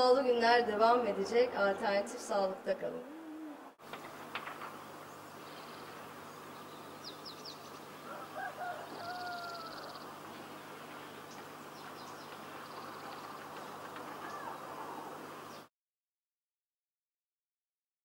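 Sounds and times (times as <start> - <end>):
steady background hiss: 0.0 - 15.7
bird call with long held note: 9.0 - 10.0.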